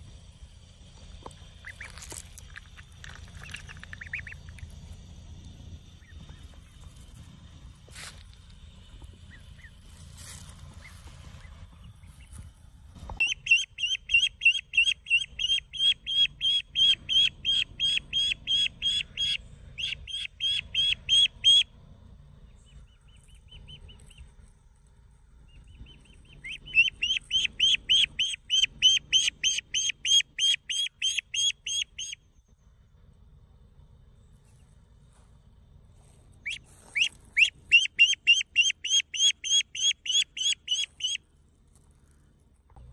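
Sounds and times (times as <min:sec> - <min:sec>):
duckling peeping: 0:01.2 - 0:04.9, 0:05.9 - 0:07.2, 0:08.3 - 0:12.4, 0:13.2 - 0:21.7, 0:22.7 - 0:24.3, 0:25.5 - 0:32.2, 0:36.4 - 0:41.3.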